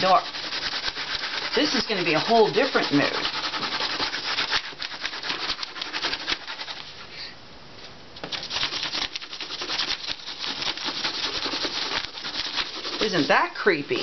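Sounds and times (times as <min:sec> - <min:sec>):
pencil scribbling on paper: 0:00.0 - 0:06.9, 0:08.3 - 0:14.0.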